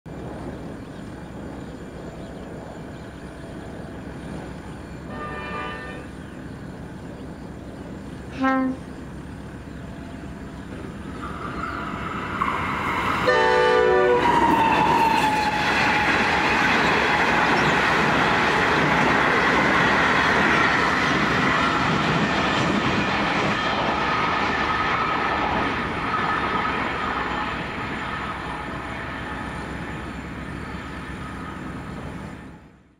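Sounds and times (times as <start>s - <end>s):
train wheels on rail: 0.1s - 32.9s
locomotive horn: 5.1s - 6.1s, 8.3s - 8.9s, 13.2s - 15.8s.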